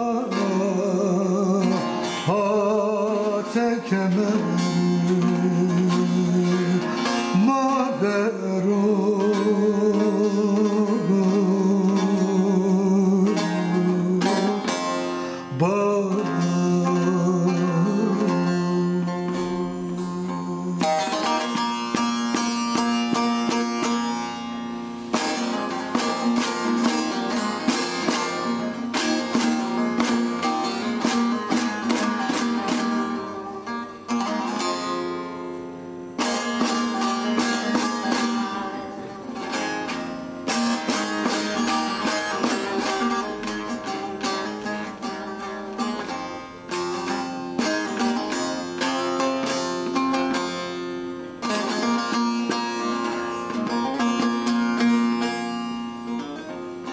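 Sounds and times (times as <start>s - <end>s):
plucked long-necked lute: 0.0s - 56.9s.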